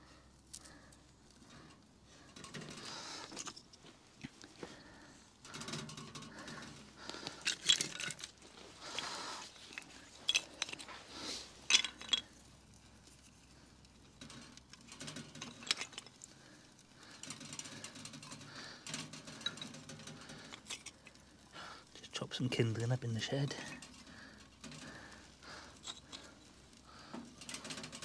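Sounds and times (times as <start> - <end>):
wooden sticks clicking and knocking: 0.4 - 11.0, 11.6 - 22.2, 22.8 - 28.0.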